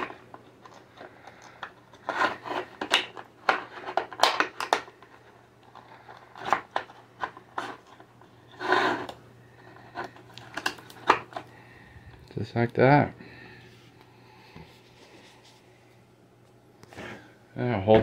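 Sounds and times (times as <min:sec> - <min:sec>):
plastic bottle scraping and crinkling: 0:00.0 - 0:04.6, 0:05.7 - 0:11.5.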